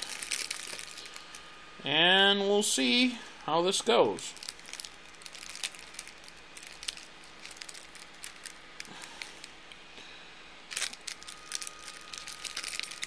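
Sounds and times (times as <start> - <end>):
plastic wrapper crinkling: 0.0 - 1.5, 4.3 - 9.6, 10.7 - 13.0.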